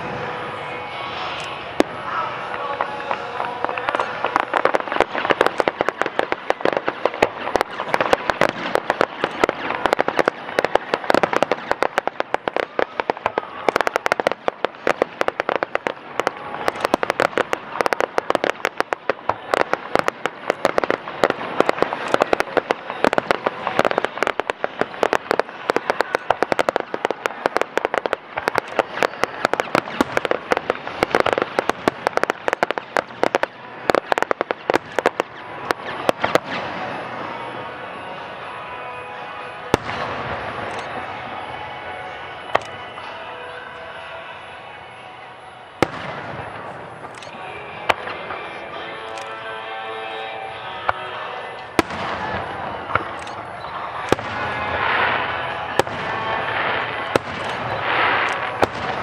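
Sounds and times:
fireworks crackling and popping: 0.0s - 59.0s
firework shells bursting: 3.2s - 37.0s.

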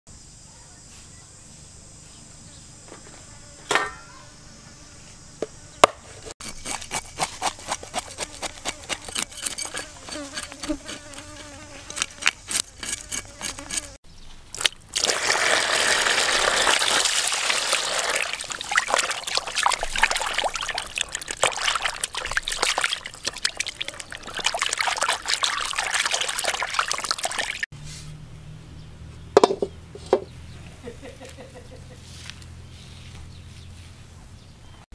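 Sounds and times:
rapid clicks and scrapes: 6.4s - 14.0s
water splashing and trickling: 14.5s - 27.7s.

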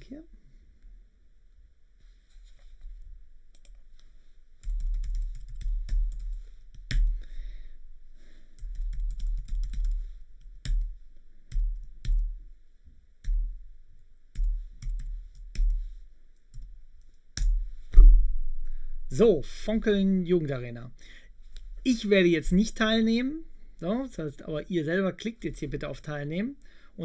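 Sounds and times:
typing on computer keyboard: 4.6s - 7.1s, 8.6s - 10.9s.

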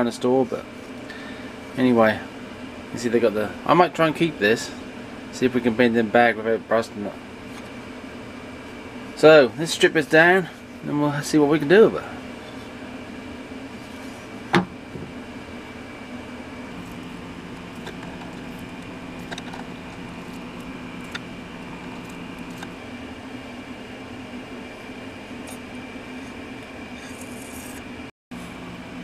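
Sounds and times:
machine humming: 10.6s - 29.0s.

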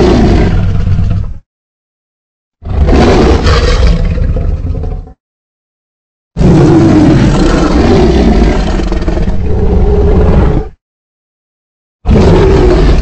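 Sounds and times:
deep dinosaur roar: 0.0s - 1.4s, 2.6s - 5.2s, 6.4s - 10.8s, 12.1s - 13.0s.

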